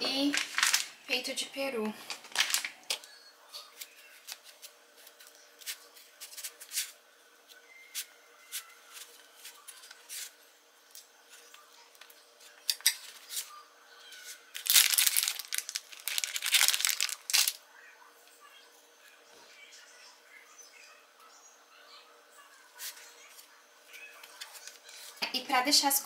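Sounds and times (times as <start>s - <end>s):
wrapper crinkling and tearing: 0.2s - 1.1s, 2.1s - 3.1s, 14.2s - 17.6s.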